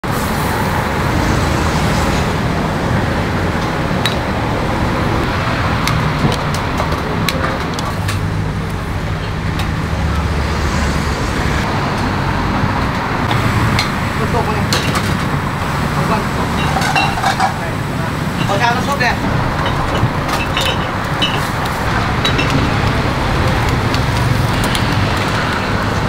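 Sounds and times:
road traffic rumble: 0.0 - 26.0
light clicks and clinks: 19.6 - 22.7.

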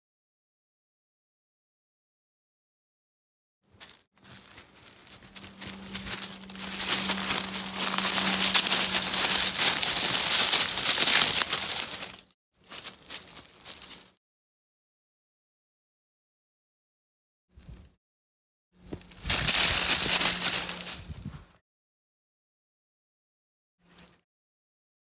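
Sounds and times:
dry leaves rustling: 3.7 - 14.2, 18.8 - 21.4.

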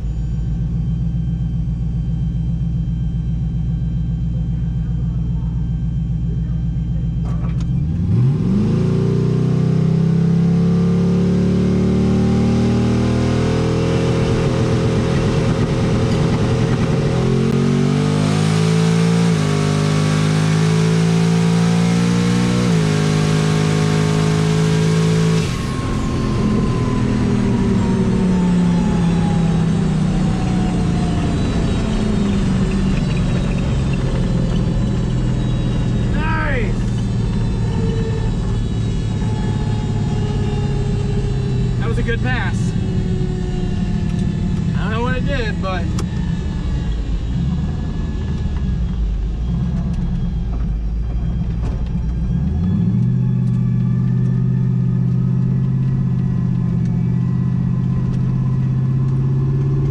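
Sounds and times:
falling whine: 0.0 - 59.9
engine revving at high revs: 7.8 - 48.7.

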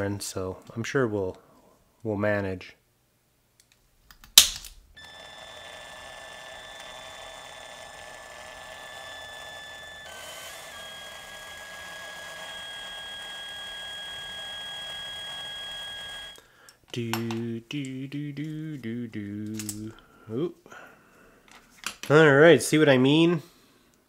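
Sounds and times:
power drill whining: 5.0 - 16.5.

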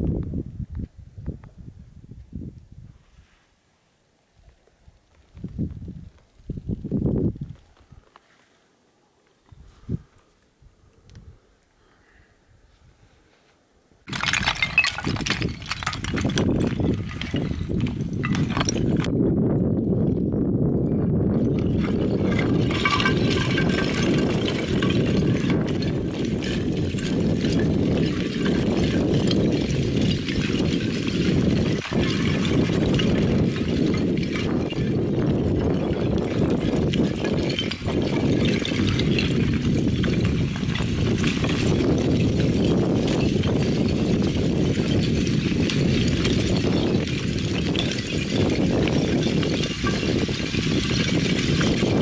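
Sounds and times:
wind rumbling on microphone: 0.0 - 3.4, 4.4 - 8.1, 9.4 - 11.6, 14.1 - 52.0
loose rocks clattering: 14.1 - 19.1, 21.3 - 52.0.

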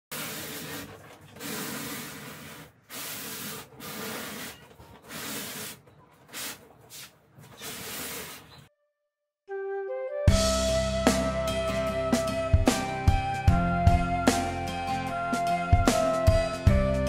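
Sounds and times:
foam box scraping on concrete: 0.1 - 8.7.

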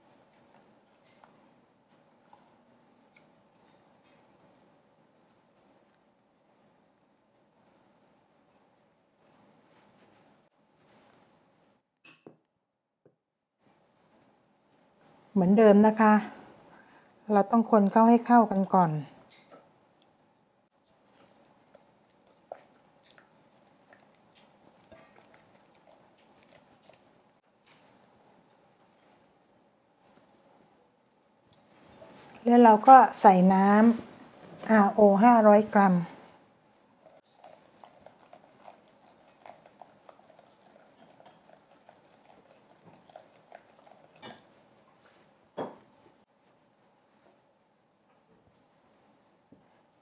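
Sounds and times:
spatula stirring liquid in jug: 22.6 - 26.8, 37.0 - 44.6
water pouring into a bowl: 37.0 - 44.5.

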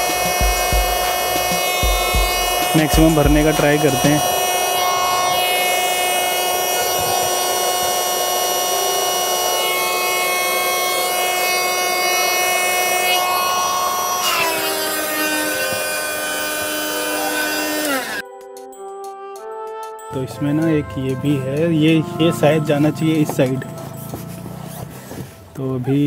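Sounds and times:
electric air pump running: 0.0 - 18.2.

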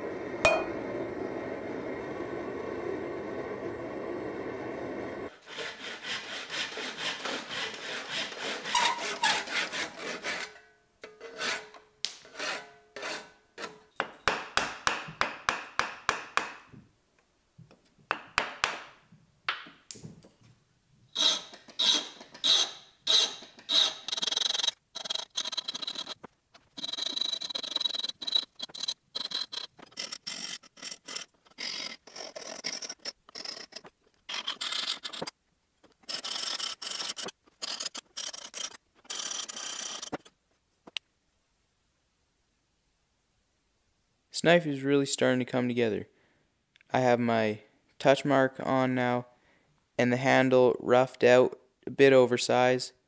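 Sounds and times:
rasp shaping wood: 5.3 - 10.6, 11.2 - 16.6, 21.2 - 40.3
hand saw cutting wood: 5.3 - 13.9, 21.2 - 35.3, 36.0 - 40.3.

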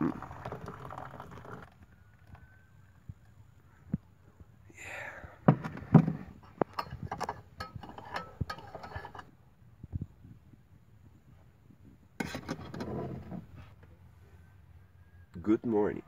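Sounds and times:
coffee pot and stove clinking: 6.6 - 9.3.

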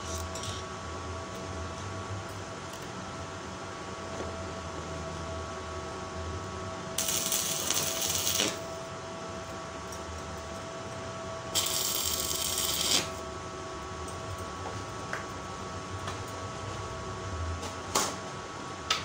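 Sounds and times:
steady hum: 0.0 - 18.8
arc welding crackling sizzle: 6.9 - 8.8, 11.5 - 13.3.

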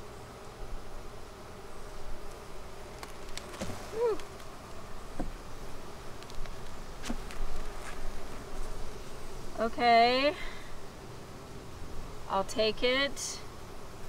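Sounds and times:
bees buzzing: 0.0 - 14.0.

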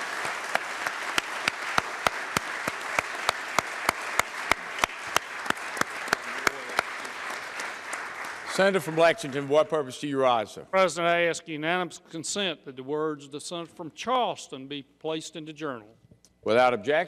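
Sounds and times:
nearby hands clapping steadily: 0.0 - 9.5
crowd applauding: 0.0 - 9.9.

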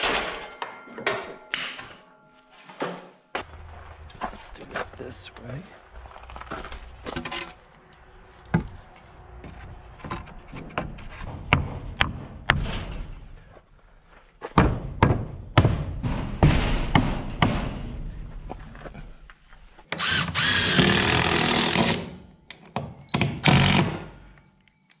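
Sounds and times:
wooden board knocks and thuds: 10.1 - 13.2, 14.5 - 18.1.

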